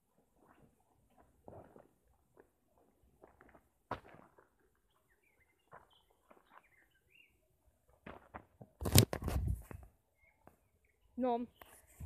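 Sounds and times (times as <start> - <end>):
faint bird chirps: 4.8 - 7.8, 10.0 - 12.0
camera handling noise: 8.8 - 9.8.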